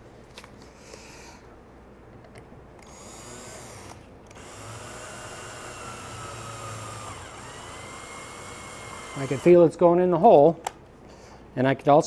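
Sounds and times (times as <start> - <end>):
cordless drill driving screw: 2.8 - 9.6.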